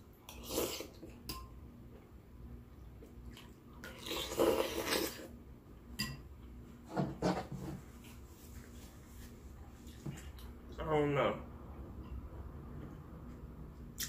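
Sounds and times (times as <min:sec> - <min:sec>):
slurping soup: 0:03.9 - 0:05.3.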